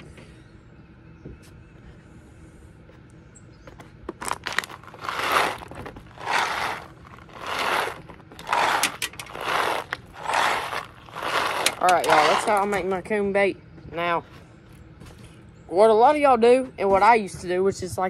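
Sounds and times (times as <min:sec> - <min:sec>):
corn rattling in a plastic bottle: 0:04.2 - 0:12.8.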